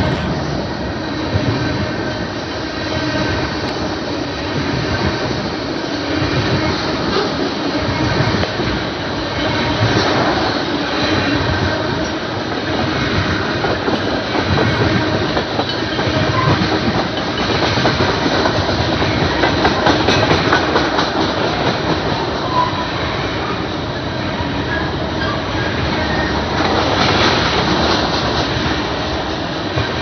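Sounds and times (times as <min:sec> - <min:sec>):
steel wheels rumbling on rail: 0:00.0 - 0:30.0
wheels clacking over rail joints: 0:09.7 - 0:22.8.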